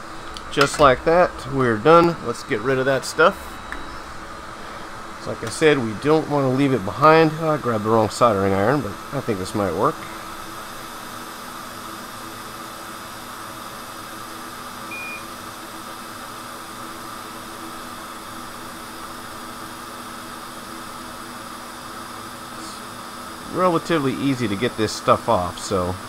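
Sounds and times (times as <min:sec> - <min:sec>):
equipment hum and fan hiss: 0:00.0 - 0:26.0
high electronic beep: 0:14.9 - 0:15.3.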